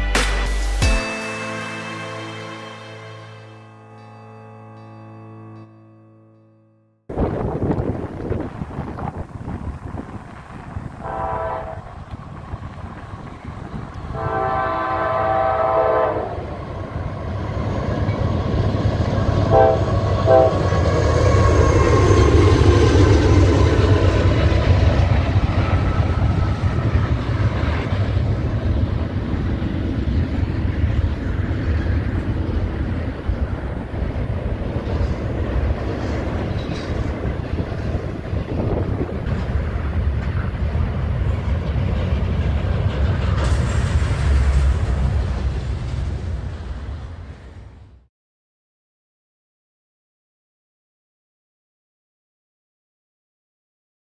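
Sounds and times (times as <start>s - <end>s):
diesel locomotive engines: 7.1s - 48.0s
train cars rumbling and clacking: 7.1s - 48.0s
train air horn blasts: 11.0s - 12.0s, 14.1s - 16.6s, 19.5s - 20.8s.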